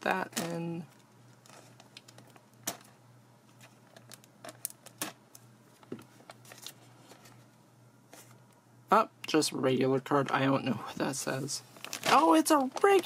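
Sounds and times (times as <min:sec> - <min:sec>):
foil wrapper crinkling: 0:03.6 - 0:07.4, 0:11.7 - 0:13.0.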